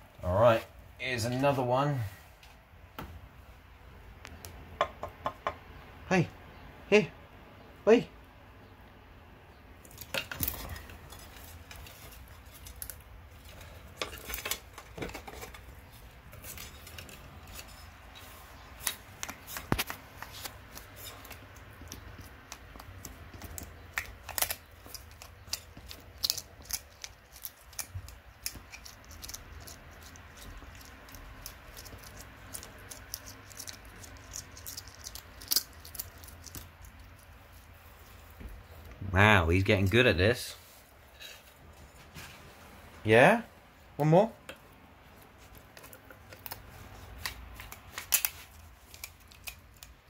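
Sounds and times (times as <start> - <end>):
lizard crunching snail shell: 9.8 - 38.4, 45.3 - 50.0.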